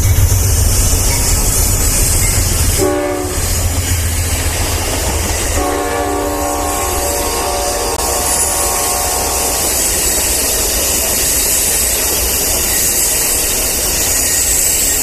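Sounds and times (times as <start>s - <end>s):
train cars rumbling past: 0.0s - 15.0s
train horn: 2.8s - 3.9s, 5.5s - 9.8s.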